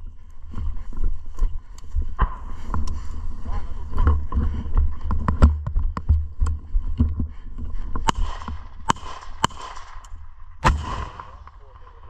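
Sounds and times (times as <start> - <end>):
gunshot: 8.1 - 10.0, 10.6 - 12.0.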